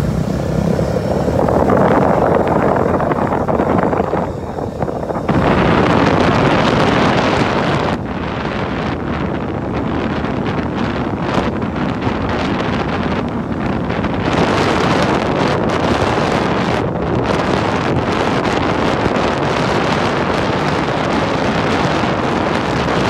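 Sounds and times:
vehicle road noise: 0.0s - 23.0s
wind buffeting microphone: 0.0s - 23.0s.

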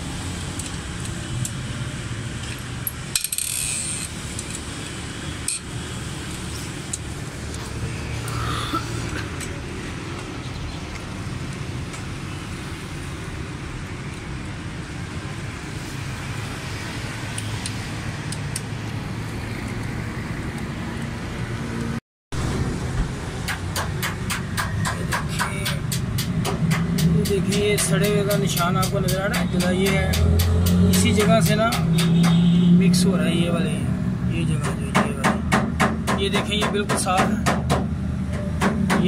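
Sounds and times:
vehicle noise rumble: 0.0s - 39.0s
metal tools clicking: 2.4s - 5.7s
rapid even clicking: 23.5s - 32.4s.

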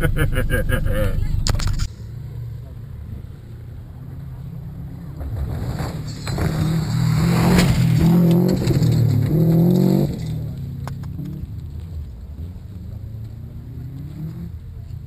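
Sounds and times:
rally car engine revving past: 4.8s - 11.5s.

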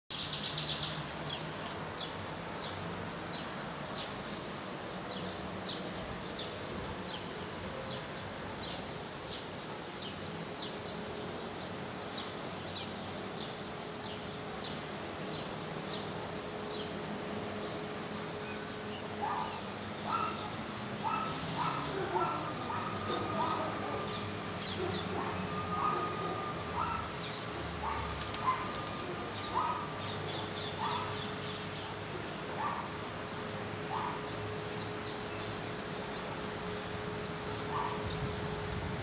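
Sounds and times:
distant traffic hum: 0.1s - 39.0s
dog barking: 19.2s - 24.1s, 24.7s - 27.1s, 27.8s - 30.0s, 30.8s - 31.2s, 32.6s - 32.9s, 33.9s - 34.3s, 37.7s - 38.0s.

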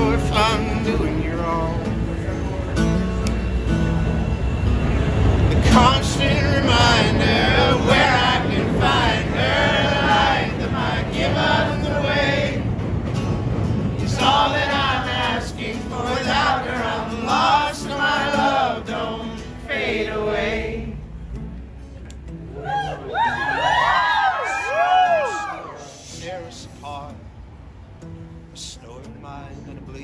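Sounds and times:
man singing: 0.0s - 2.8s, 5.5s - 9.4s
crowd singing along: 0.0s - 21.4s
acoustic guitar strumming: 0.0s - 23.8s, 25.0s - 30.0s.

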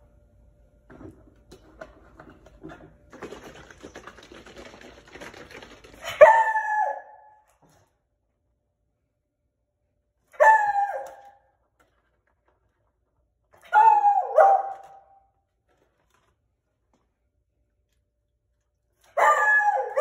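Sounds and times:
dog barking: 10.4s - 11.4s, 13.7s - 15.2s, 19.1s - 20.0s.

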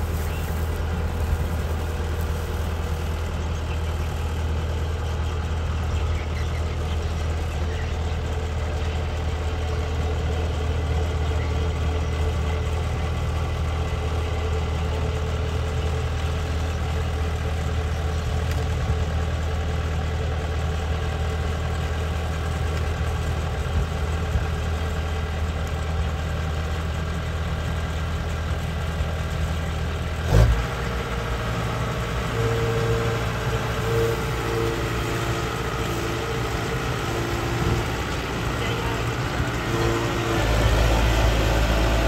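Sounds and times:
diesel engine running: 0.0s - 42.0s.

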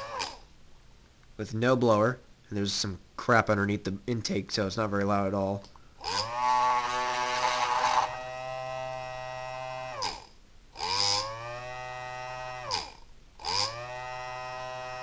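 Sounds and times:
siren winding up and down: 0.0s - 0.4s, 6.0s - 15.0s.

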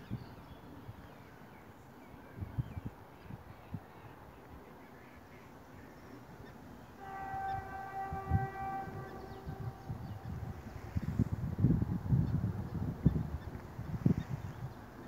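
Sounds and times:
train horn: 6.9s - 11.3s
wind thumps on microphone: 8.2s - 14.9s.

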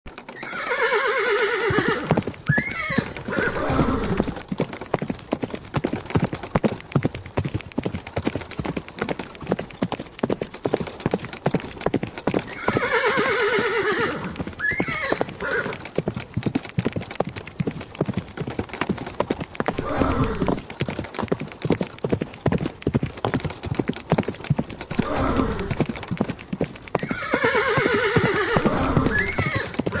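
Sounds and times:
rapid horse hoofbeats: 0.1s - 30.0s
horse neighing: 0.4s - 4.4s, 12.5s - 15.8s, 19.7s - 20.6s, 24.9s - 25.8s, 27.0s - 30.0s.

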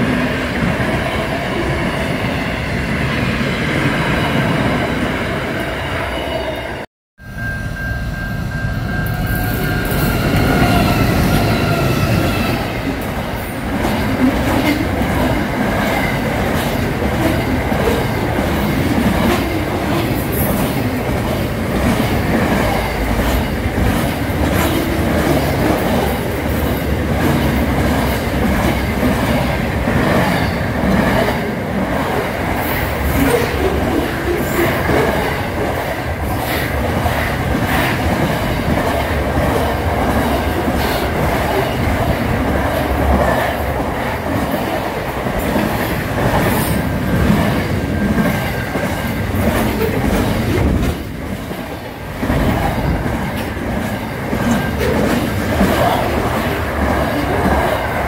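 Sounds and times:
freight train passing: 0.0s - 58.0s.

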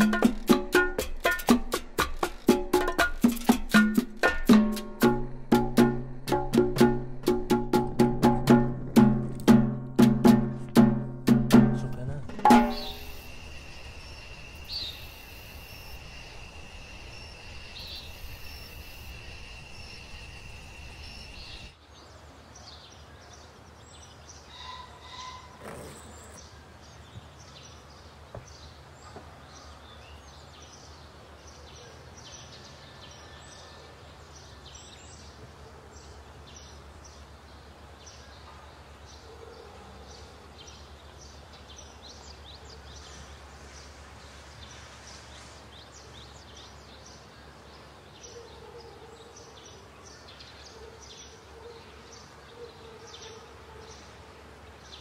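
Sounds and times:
steady high whine: 11.9s - 21.7s
high bird chirps: 12.5s - 16.0s.

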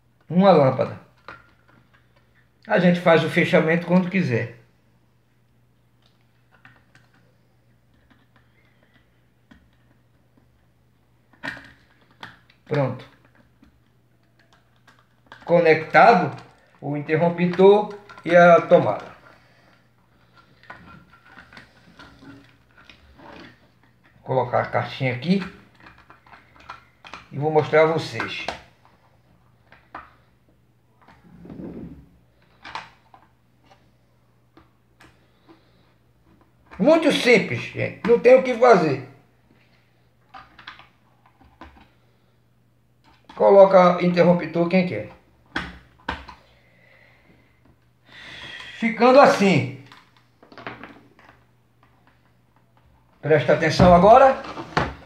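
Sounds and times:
dull rub or scrape: 31.2s - 32.1s.

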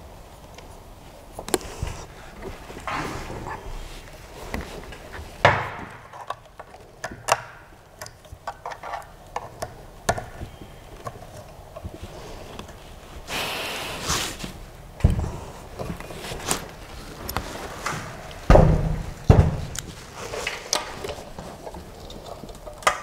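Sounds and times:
clicks and knocks of parts: 4.4s - 12.8s, 15.8s - 23.0s.

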